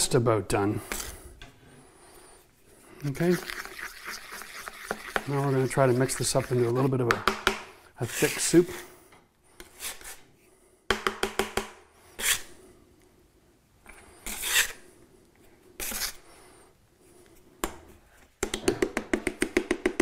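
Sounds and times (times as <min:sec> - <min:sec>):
drywall knife scraping compound: 0:00.7 - 0:01.3, 0:02.8 - 0:07.2, 0:08.0 - 0:10.3, 0:12.0 - 0:12.6, 0:13.9 - 0:15.0, 0:15.8 - 0:16.6.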